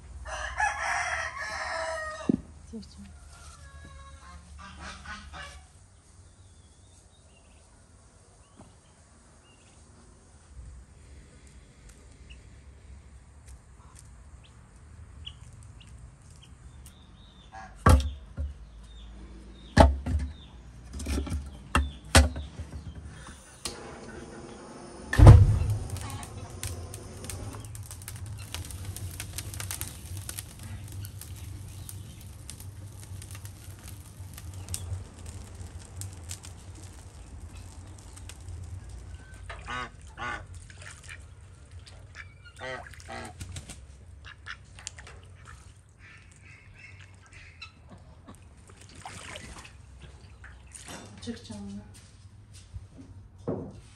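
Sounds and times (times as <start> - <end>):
goose honking: 4.0 - 5.6
ducks quacking: 4.2 - 5.7, 39.5 - 43.5, 44.2 - 48.5
wood fire rumbling: 17.9 - 42.1
loud thump: 25.1 - 26.4.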